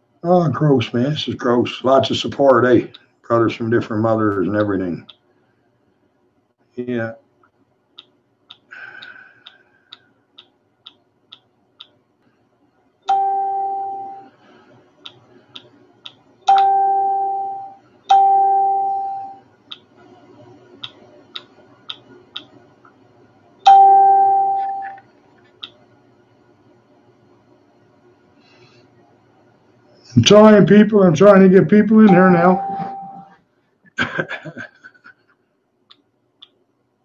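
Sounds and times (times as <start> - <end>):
electronic notification chime: 32.1 - 33.3.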